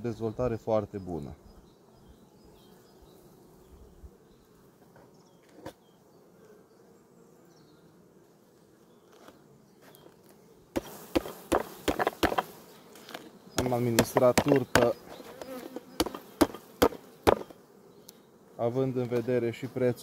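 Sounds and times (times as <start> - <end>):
honeybees humming: 0.0 - 20.0
knock: 16.0 - 17.5.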